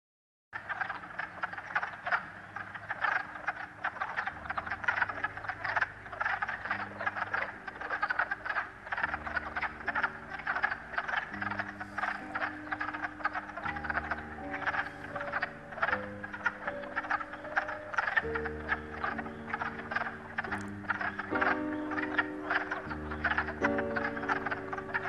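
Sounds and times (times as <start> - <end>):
frogs croaking: 0.6 - 25.0.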